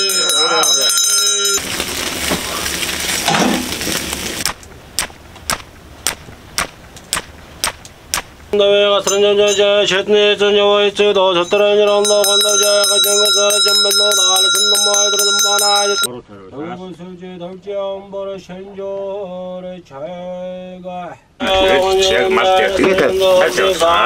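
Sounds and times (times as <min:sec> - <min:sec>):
man's voice holding a pitch: 0:00.0 - 0:01.6, 0:11.4 - 0:16.1, 0:21.4 - 0:24.0
fire flaring up in a stove: 0:00.6 - 0:08.6.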